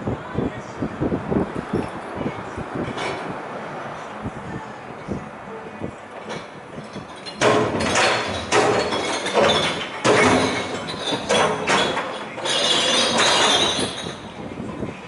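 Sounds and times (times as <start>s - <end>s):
glass bottles crashing: 6.3s - 14.2s.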